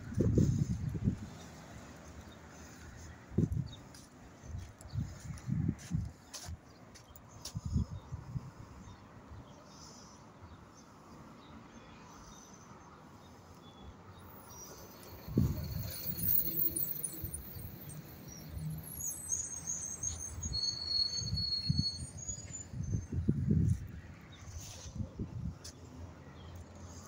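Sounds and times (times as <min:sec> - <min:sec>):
wind gusts on microphone: 0:00.0 - 0:01.6, 0:03.2 - 0:06.2, 0:07.5 - 0:09.0, 0:15.2 - 0:16.3, 0:21.2 - 0:25.7
faint high-pitched chirping: 0:14.4 - 0:23.3.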